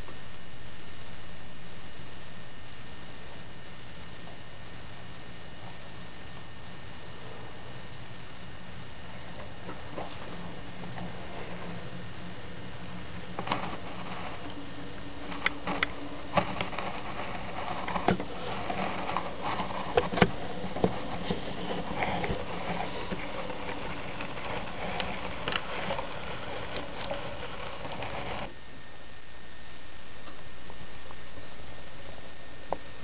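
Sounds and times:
model train motor whirring: 7.8s - 28.5s.

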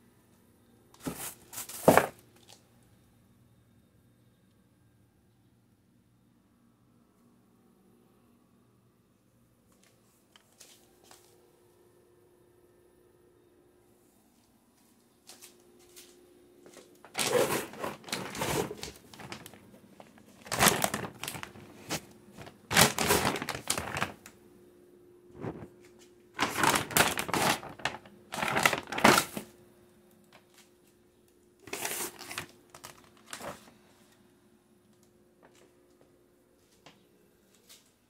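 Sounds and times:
plastic bags crinkling: 1.0s - 2.6s, 17.0s - 24.3s, 25.4s - 25.7s, 26.4s - 29.5s, 31.7s - 33.7s.

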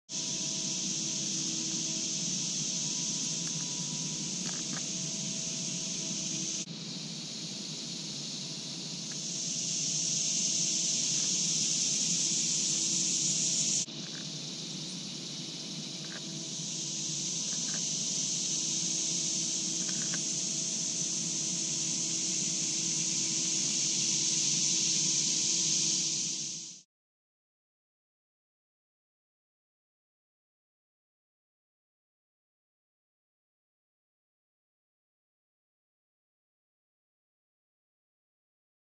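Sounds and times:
high-pitched insect chorus: 0.1s - 26.8s.

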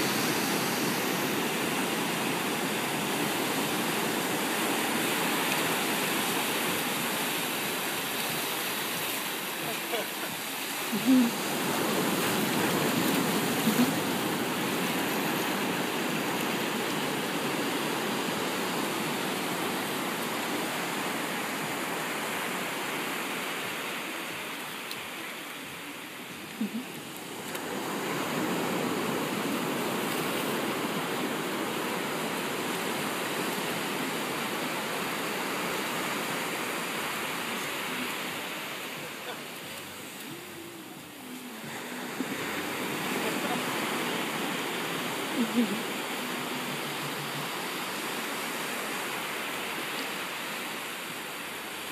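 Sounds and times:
ocean surf breaking: 0.0s - 51.9s.

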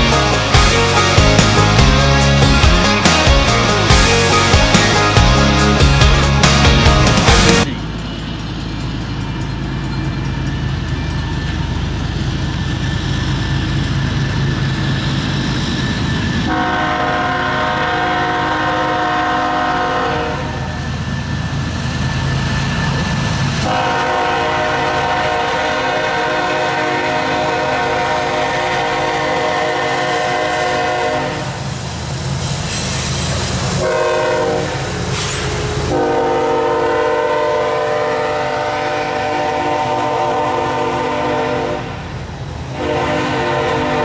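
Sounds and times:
diesel locomotive engine rumble: 0.0s - 44.0s
train air horn blasts: 16.4s - 20.8s, 23.6s - 31.7s, 33.7s - 42.1s, 42.7s - 44.0s.

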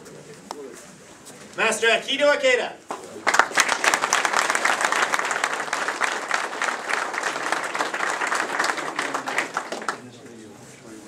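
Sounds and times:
crowd applauding: 2.9s - 10.1s.

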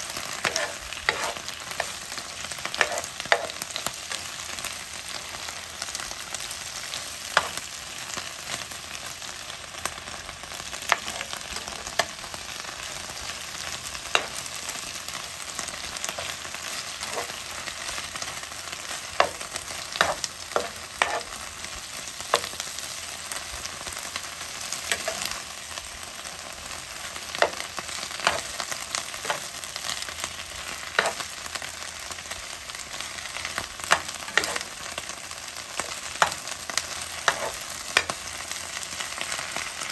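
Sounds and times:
vegetables sizzling in a frying pan: 0.0s - 39.9s
spatula clacking and scraping pan: 0.3s - 2.0s, 2.7s - 3.7s, 7.4s - 7.6s, 14.1s - 14.5s, 16.0s - 18.0s, 19.1s - 21.4s, 22.3s - 22.6s, 24.8s - 25.4s, 27.3s - 28.6s, 29.2s - 29.5s, 30.8s - 31.3s, 33.9s - 34.9s, 35.8s - 38.2s.

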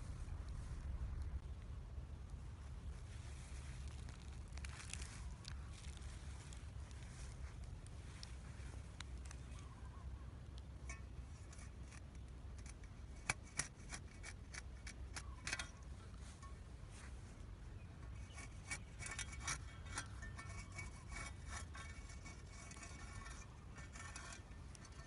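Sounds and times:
metal spade scraping dirt: 10.8s - 25.0s.

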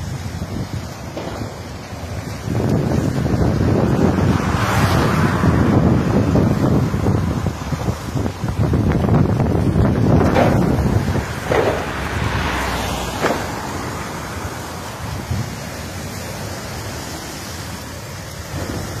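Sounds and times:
wind buffeting microphone: 0.0s - 19.0s
short sharp pops: 1.1s - 1.9s, 10.2s - 14.0s.

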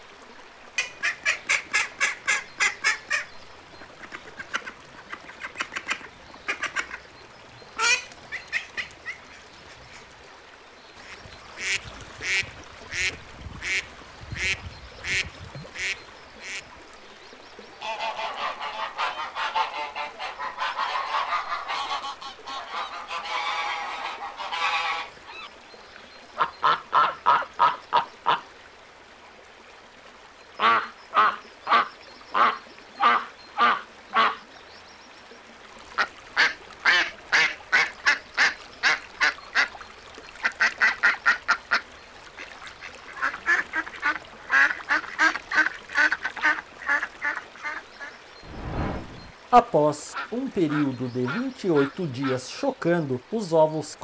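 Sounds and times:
ducks quacking: 0.8s - 7.0s, 11.0s - 16.6s, 17.8s - 25.5s, 26.4s - 28.4s, 30.6s - 34.4s.

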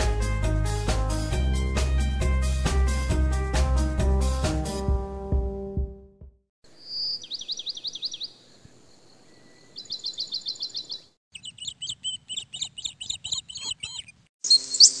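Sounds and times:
songbirds trilling and chirping: 6.7s - 15.0s.

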